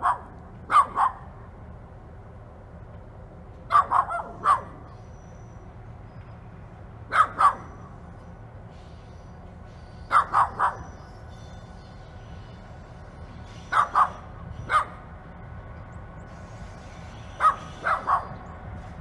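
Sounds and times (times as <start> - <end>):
dog barking: 0.0 - 1.3, 3.7 - 4.8, 7.1 - 7.8, 10.1 - 10.9, 13.7 - 15.0, 17.4 - 18.3
diesel locomotive rumble: 0.0 - 19.0.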